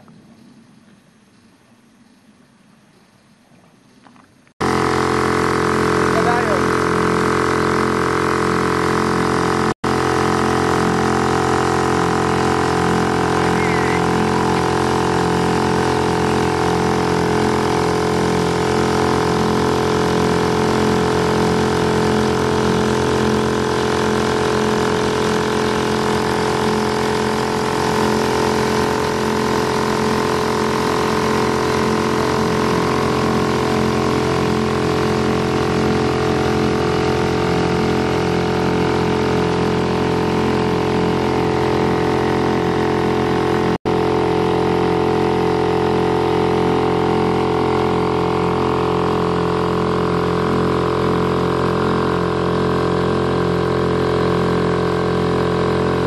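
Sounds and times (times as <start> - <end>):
outboard boat motors droning: 4.1 - 56.0.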